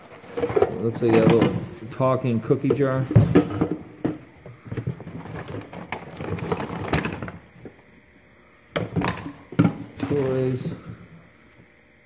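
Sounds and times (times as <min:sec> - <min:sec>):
objects clicking and knocking: 0:00.1 - 0:01.6.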